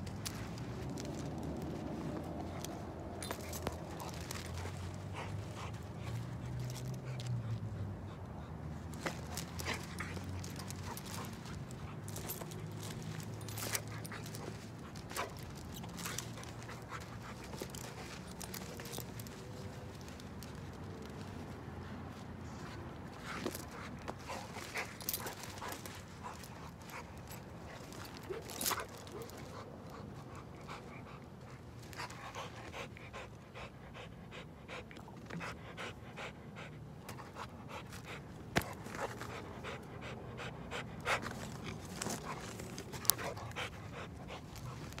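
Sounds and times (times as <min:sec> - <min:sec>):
metal chain clinking: 0:00.0 - 0:07.6, 0:08.9 - 0:21.2, 0:23.2 - 0:29.6
dog panting: 0:00.2 - 0:45.0.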